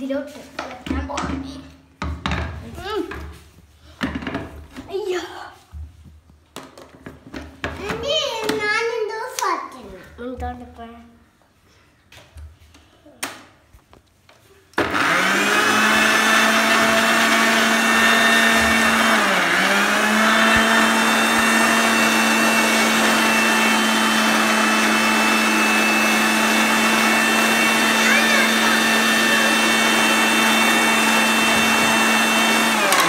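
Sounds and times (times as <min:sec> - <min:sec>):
mixer grinder motor whine: 0:14.8 - 0:33.0.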